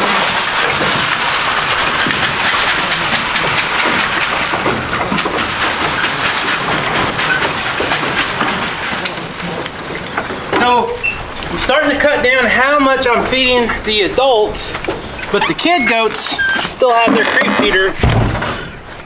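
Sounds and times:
dry feed pouring into wooden trough: 0:00.0 - 0:14.8.

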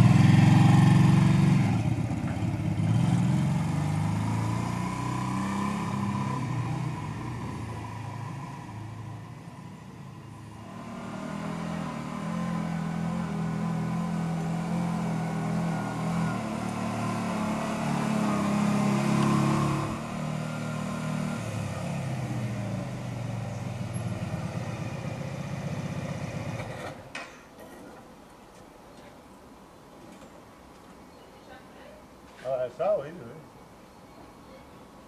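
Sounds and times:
motorcycle engine running: 0:00.0 - 0:07.4.

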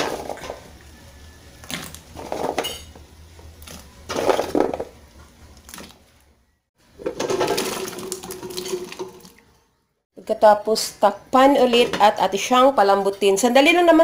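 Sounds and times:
pieces splashing into boiling water: 0:07.0 - 0:09.5.

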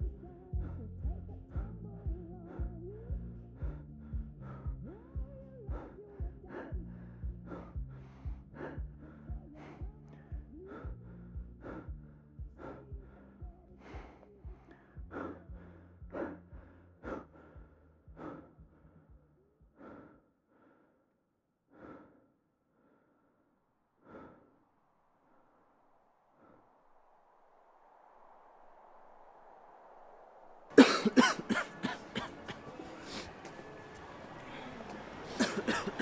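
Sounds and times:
low sustained music: 0:00.0 - 0:17.8
person gasping breaths: 0:00.0 - 0:24.6, 0:30.8 - 0:33.5, 0:34.4 - 0:36.0.

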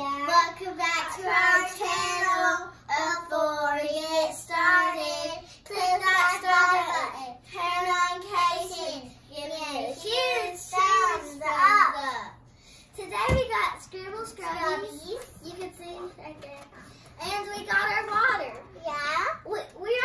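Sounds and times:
girls singing together: 0:00.0 - 0:09.0.

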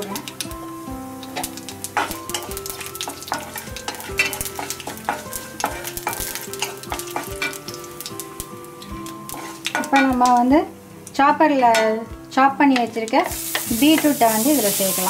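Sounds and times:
spices sizzling in hot oil: 0:00.0 - 0:15.0
wooden spatula scraping metal pan: 0:09.3 - 0:10.1.

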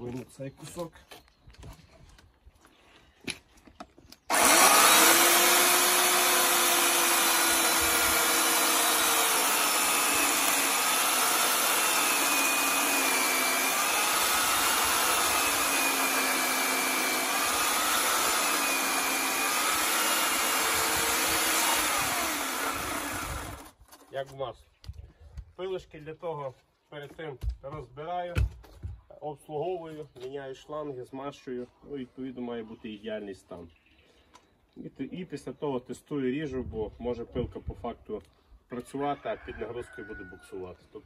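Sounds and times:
electric chainsaw cutting log: 0:04.2 - 0:23.8.

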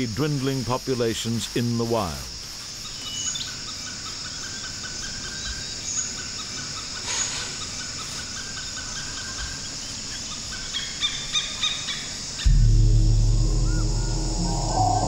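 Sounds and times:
insect chirps: 0:00.0 - 0:15.0
insect chorus drone: 0:00.0 - 0:15.0
brief noise: 0:12.5 - 0:15.0.

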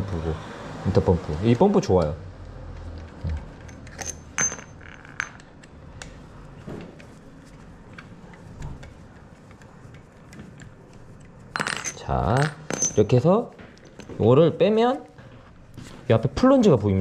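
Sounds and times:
metal tools clinking on stone: 0:03.6 - 0:05.5, 0:11.5 - 0:14.2.

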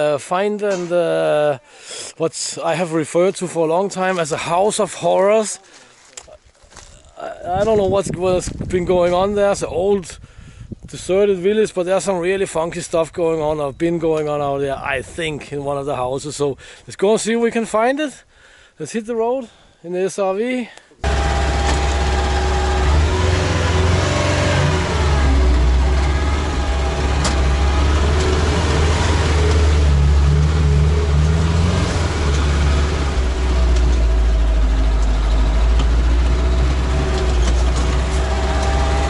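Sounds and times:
vehicle engine droning: 0:21.0 - 0:39.0.

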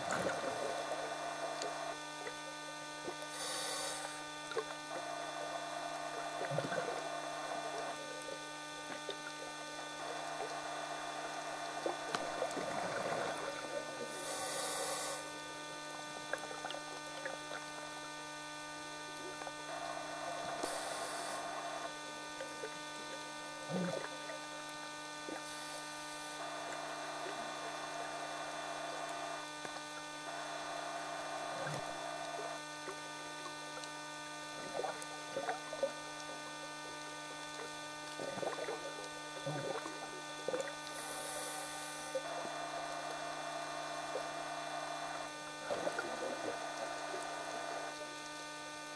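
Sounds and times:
camcorder electrical hum: 0:00.0 - 0:48.9
regulator breaths hissing: 0:03.3 - 0:04.2, 0:14.1 - 0:15.3, 0:20.6 - 0:21.8, 0:40.9 - 0:42.2.

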